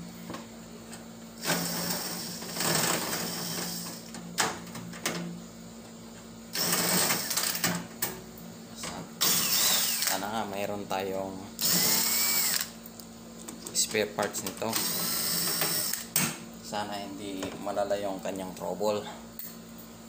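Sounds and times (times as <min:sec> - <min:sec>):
cordless drill motor running: 0:06.5 - 0:07.6, 0:09.2 - 0:10.2, 0:11.6 - 0:12.7, 0:14.7 - 0:16.1.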